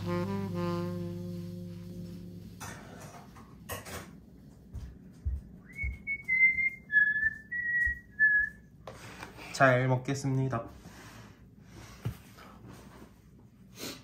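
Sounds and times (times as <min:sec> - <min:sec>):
person whistling a tune: 0:05.6 - 0:08.6.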